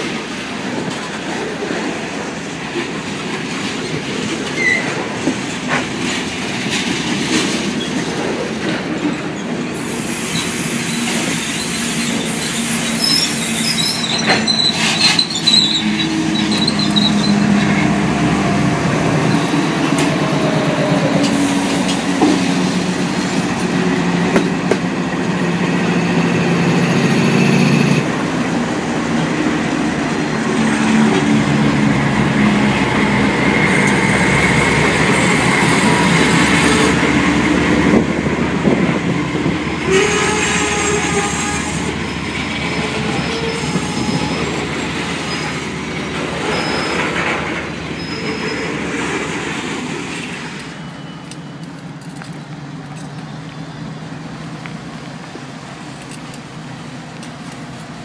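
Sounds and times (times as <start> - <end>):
diesel locomotive engine drone: 0.0 - 58.0
train wheels rumbling and clacking: 0.0 - 58.0
high-pitched wheel squeal: 9.8 - 17.8, 39.9 - 45.6, 46.3 - 48.9.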